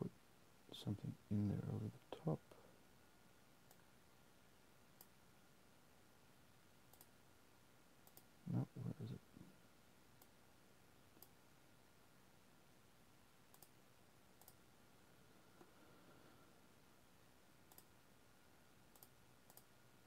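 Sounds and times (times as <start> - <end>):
faint computer mouse clicks: 5.0 - 5.2, 6.9 - 7.1, 8.0 - 8.3, 11.2 - 11.4, 13.5 - 13.8, 14.4 - 14.6, 17.7 - 17.9, 18.9 - 19.7.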